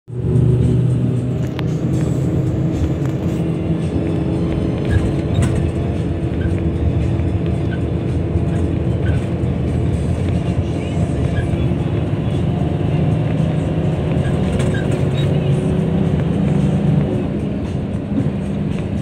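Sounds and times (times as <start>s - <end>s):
bus engine hum: 0.0s - 19.0s
road noise: 0.0s - 19.0s.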